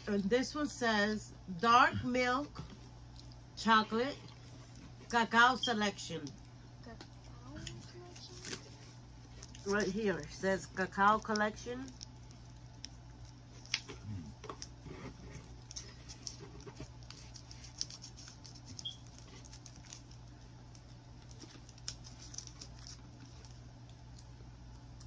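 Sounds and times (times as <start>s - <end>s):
steady low hum: 0.0s - 25.0s
snack wrappers crinkling: 6.3s - 25.0s
plastic packaging being handled: 14.5s - 23.7s.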